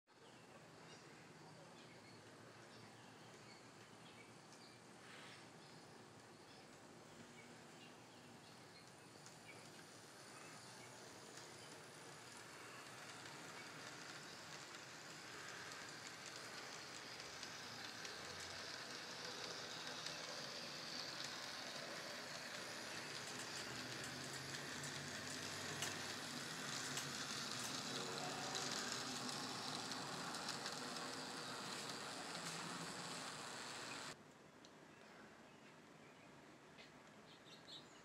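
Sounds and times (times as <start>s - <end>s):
model train motor whirr and rattle: 1.8s - 34.2s
small ticks: 8.4s - 34.2s.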